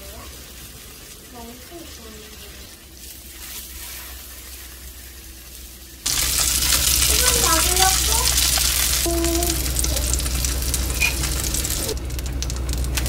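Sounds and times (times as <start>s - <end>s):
fish sizzling in pan: 0.0s - 13.0s
loud sizzling hiss: 0.0s - 13.0s.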